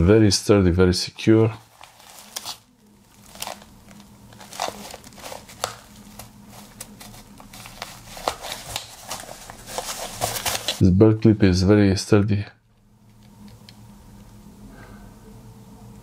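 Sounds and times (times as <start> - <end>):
fabric rustling and crinkling: 1.6 - 10.8.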